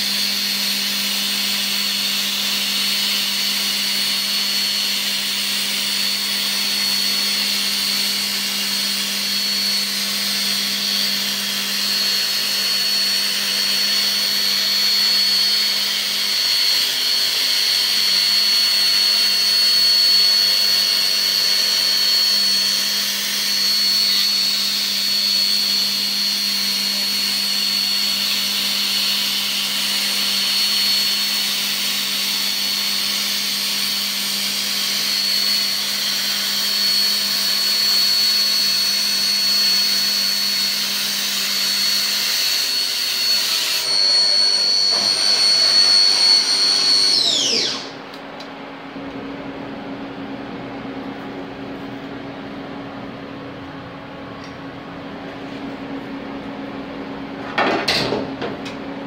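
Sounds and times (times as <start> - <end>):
milling machine spindle whine: 0.0 - 58.8.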